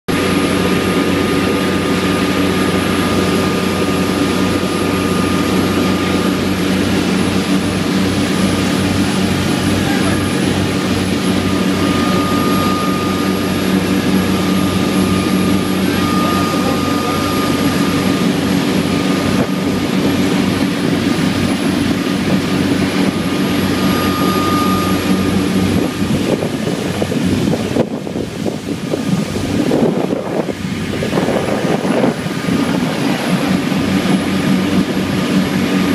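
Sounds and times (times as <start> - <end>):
thin high whine: 0.1 - 27.8
boat engine drone: 0.1 - 35.9.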